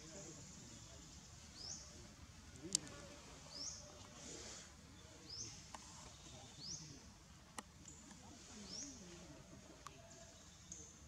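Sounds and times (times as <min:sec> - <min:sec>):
faint click: 0:02.6 - 0:03.0.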